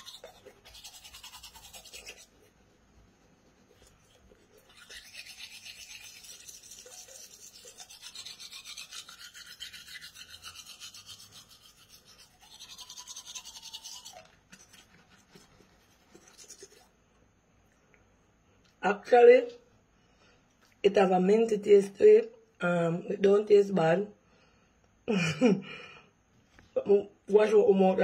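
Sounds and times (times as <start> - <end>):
toothbrush scrubbing teeth: 0.0 - 17.0.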